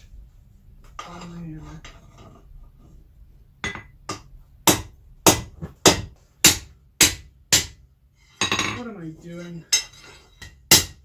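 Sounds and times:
hammer striking steel on anvil: 3.6 - 7.8, 9.7 - 11.0.

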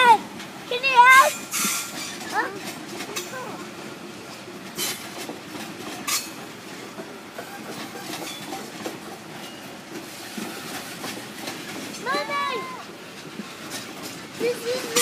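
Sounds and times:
train wagons rolling on rails: 0.0 - 15.0
sharp metallic clanks: 4.8 - 6.5.

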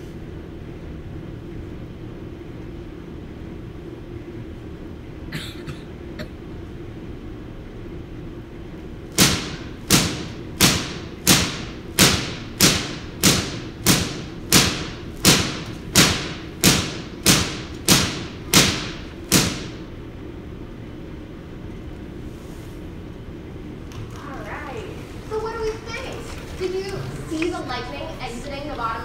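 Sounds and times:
low electrical hum: 0.0 - 29.0
electric spark cracks: 9.1 - 19.9.

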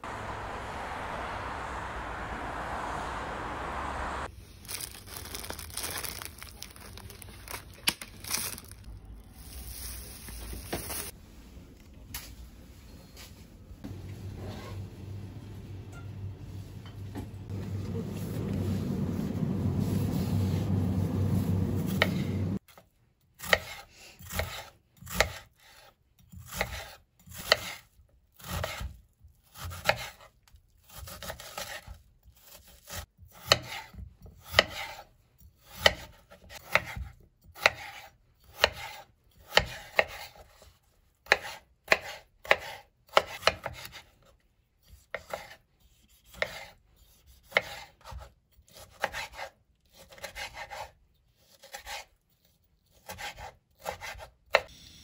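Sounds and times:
steady low rumble: 0.0 - 4.3, 17.2 - 22.6
knife chopping on cutting board: 35.7 - 40.5, 41.2 - 44.1, 46.3 - 50.9.

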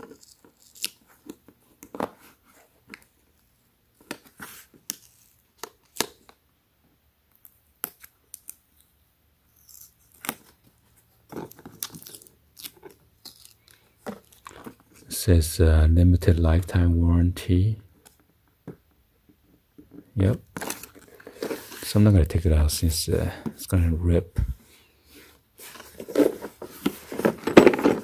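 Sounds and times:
sticker tearing: 0.0 - 1.1.

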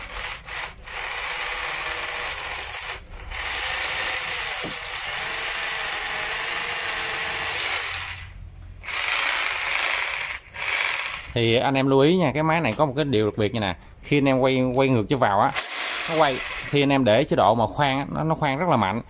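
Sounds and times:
hammer drill drilling concrete: 0.0 - 11.4, 15.5 - 16.9.

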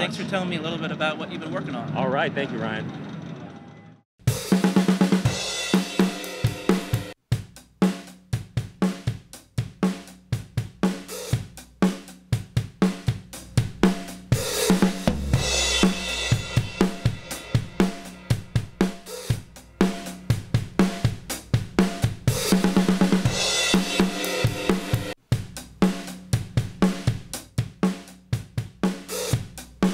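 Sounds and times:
drum kit beat: 4.2 - 29.9
cymbal crash: 14.4 - 21.1.

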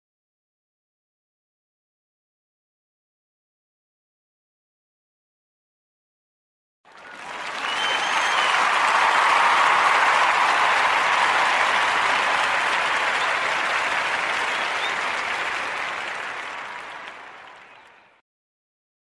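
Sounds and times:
applause: 6.9 - 18.2.

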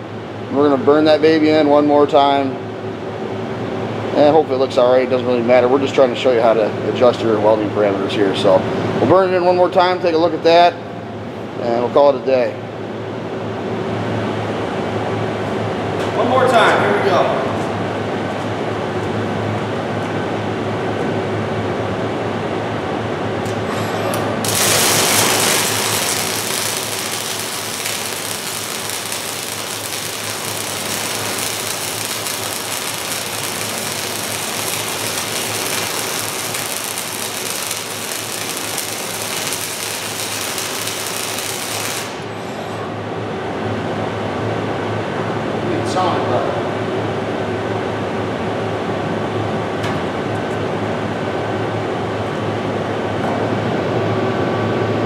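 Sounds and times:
steady shop hum: 0.0 - 55.0
welding torch arc: 23.7 - 42.8.

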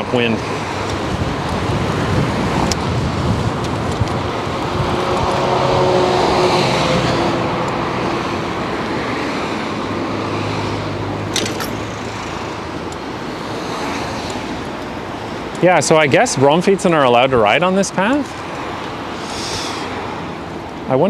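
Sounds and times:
cars passing: 0.0 - 21.0
wind noise on microphone: 0.6 - 9.7.

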